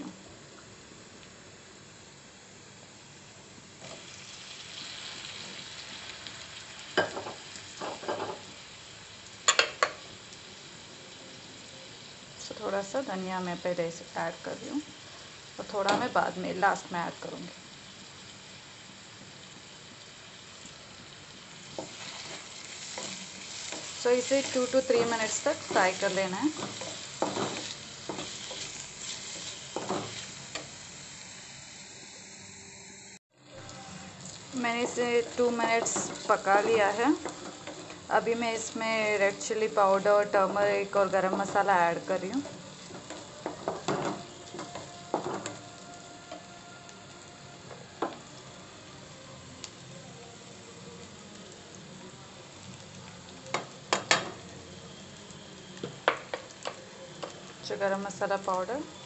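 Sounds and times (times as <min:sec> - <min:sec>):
vegetables sizzling in hot oil: 0:00.0 - 0:59.0
spatula scraping pan: 0:21.8 - 0:30.7.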